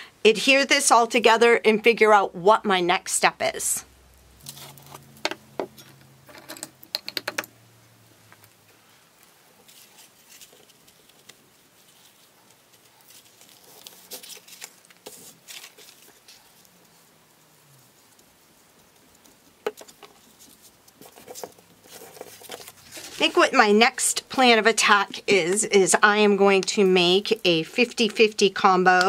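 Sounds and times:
sharp clicks and taps: 6.5 - 7.5
faint paper rustling: 8.4 - 25.5.

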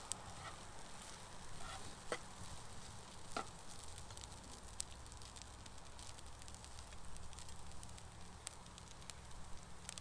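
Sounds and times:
food sizzling in a pot: 0.0 - 10.0
spatula scraping a pot: 0.3 - 0.7, 1.5 - 2.3.

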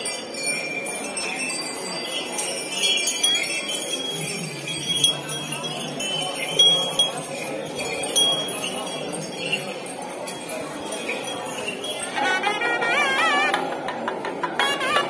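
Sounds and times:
metal chains clinking: 0.0 - 12.2
crowd murmur: 0.0 - 15.0
small bells jingling: 0.0 - 15.0.

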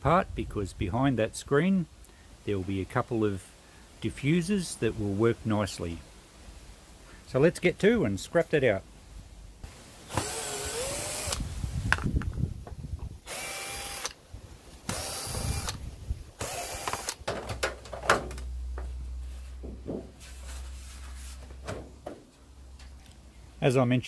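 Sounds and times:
cordless drill whirring: 10.1 - 11.4, 13.2 - 14.2, 14.8 - 15.8, 16.4 - 17.2.

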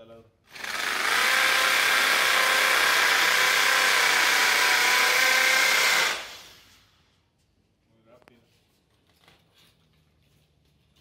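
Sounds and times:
electric drill boring into wall: 0.5 - 6.7.

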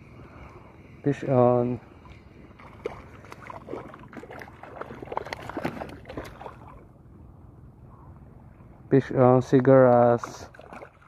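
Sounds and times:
fish splashing in water: 2.1 - 6.9, 10.2 - 11.0.

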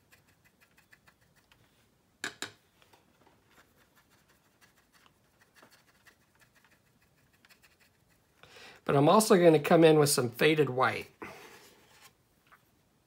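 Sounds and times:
paint brush scratchy ticks: 0.0 - 1.6, 3.5 - 8.4.

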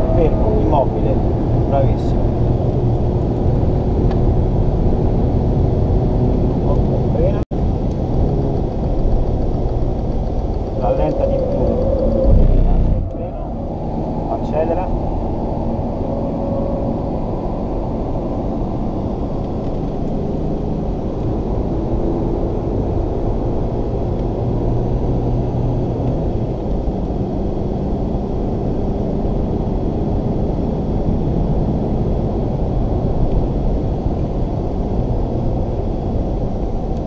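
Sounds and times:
car engine accelerating: 7.9 - 27.2.

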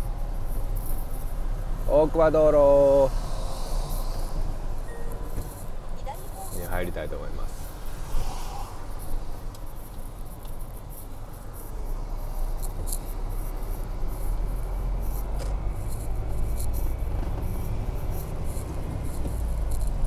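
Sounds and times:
car engine rumble: 0.0 - 20.0
tyres on a wet road: 0.0 - 20.0.

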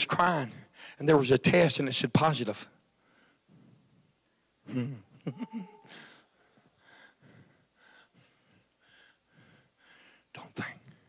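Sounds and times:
faint breaths and whispering: 5.8 - 11.0.

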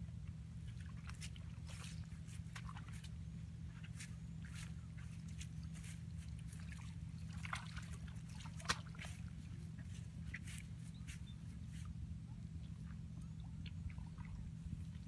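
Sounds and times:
steady low rumble: 0.0 - 15.0
splashes in muddy water: 0.6 - 3.2, 3.8 - 10.6.

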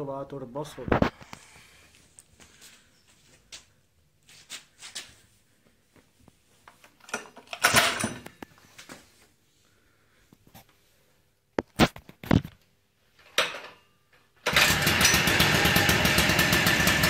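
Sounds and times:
recoil starter pull: 14.4 - 17.0.

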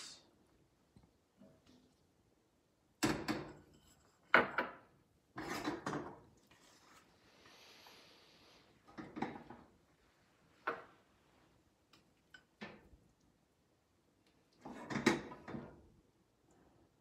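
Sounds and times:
faint hiss: 0.0 - 0.5, 6.8 - 8.9.

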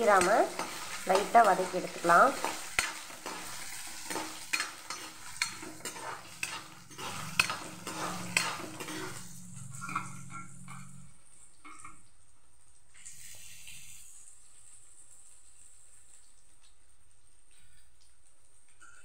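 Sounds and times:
spatula scraping metal pan: 0.0 - 11.0
spices frying in oil: 0.0 - 19.0.

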